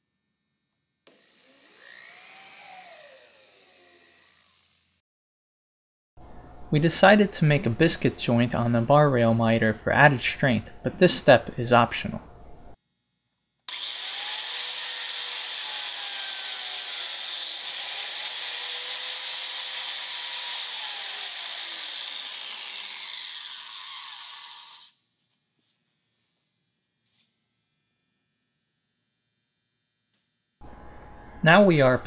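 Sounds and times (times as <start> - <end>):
biscuit joiner cutting wood: 1.1 - 5.0, 13.7 - 24.9.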